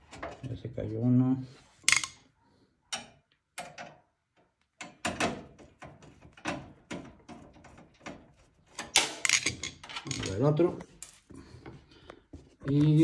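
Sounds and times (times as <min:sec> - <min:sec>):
small metal knocks and clicks: 0:02.9 - 0:10.4.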